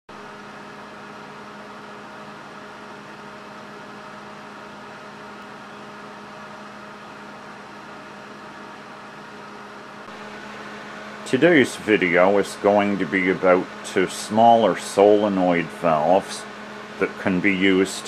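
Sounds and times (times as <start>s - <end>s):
machine hum with hiss: 0.1s - 18.0s.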